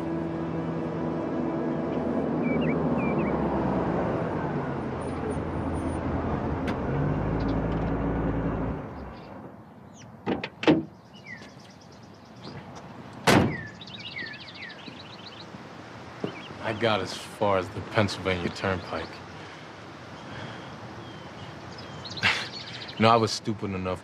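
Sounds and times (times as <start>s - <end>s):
birds chirping: 0.0s - 6.0s, 6.9s - 10.2s, 10.8s - 24.0s
car door slamming: 13.2s - 13.8s.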